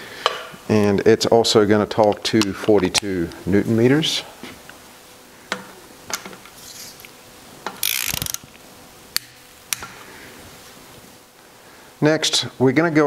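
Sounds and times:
ratchet wrench clicking: 7.7 - 8.4.

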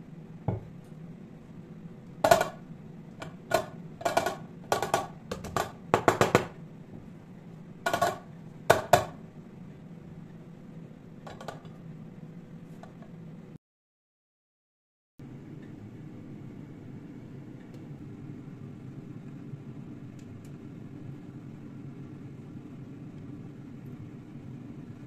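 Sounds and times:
low steady hum: 0.0 - 13.6, 15.2 - 25.0
dishes clinking and clattering: 2.3 - 2.6, 7.9 - 9.2, 11.3 - 11.8.

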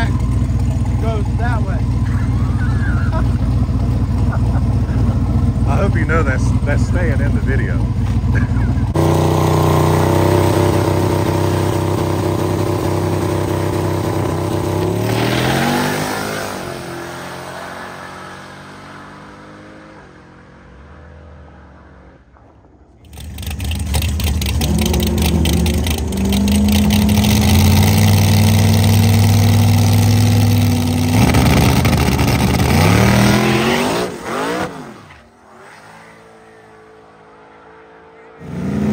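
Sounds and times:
drag car engine choppy idle: 0.0 - 9.0, 23.1 - 29.2
drag car engine launching: 22.4 - 28.5.

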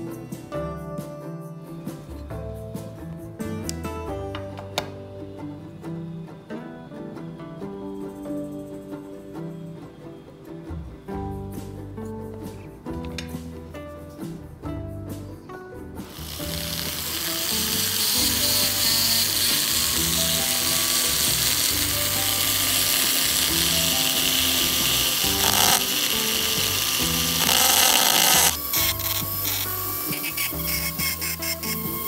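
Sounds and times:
background music: 0.0 - 32.0
rotary tool grinding: 16.0 - 32.0.

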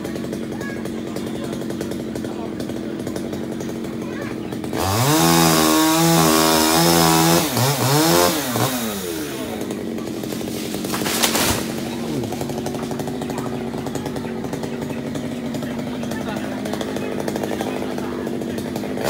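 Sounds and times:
chainsaw revving and idling: 0.0 - 19.0
sharp crack: 8.7 - 13.5.

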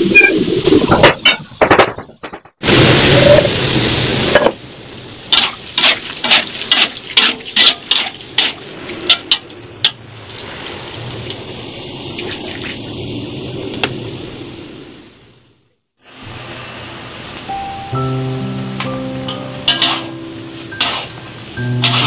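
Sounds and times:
frying hiss: 2.6 - 15.3, 16.0 - 22.0
utensil scraping and knocking pan: 20.8 - 21.1.

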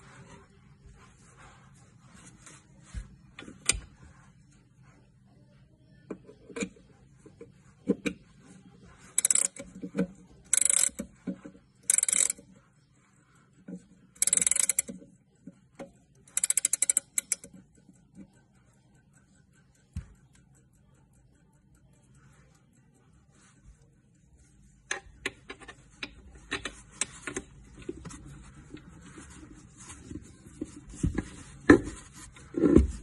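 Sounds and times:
clock winding ratchet clicks: 9.2 - 9.8, 10.4 - 11.2, 11.8 - 12.5, 14.1 - 15.0, 16.1 - 18.2.

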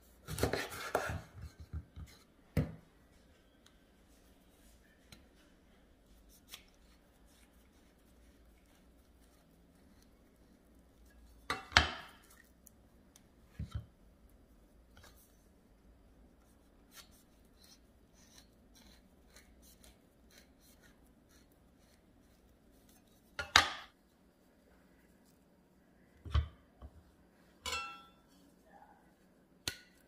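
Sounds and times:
faint tapping and scraping: 0.4 - 15.6.

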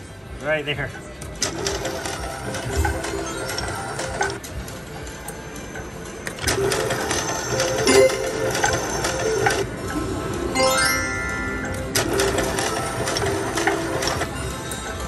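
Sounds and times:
slot machine reels whirring: 1.4 - 4.4, 5.8 - 15.0.

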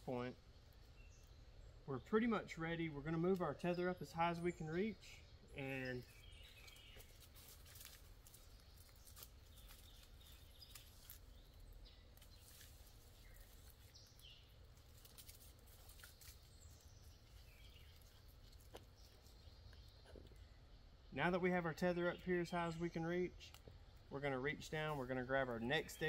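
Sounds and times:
climbing tether scraping tree trunk: 6.0 - 20.3
faint bird chirps: 8.2 - 24.2.

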